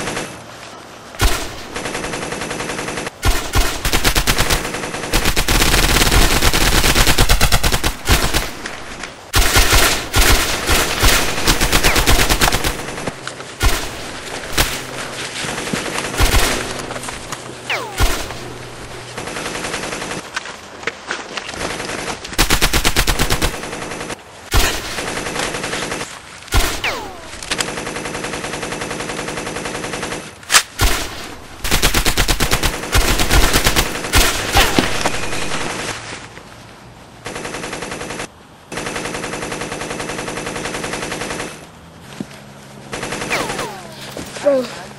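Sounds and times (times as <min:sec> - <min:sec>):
machine-gun bursts: 0:01.2 - 0:20.3, 0:21.6 - 0:35.9, 0:37.2 - 0:41.6, 0:42.9 - 0:44.1.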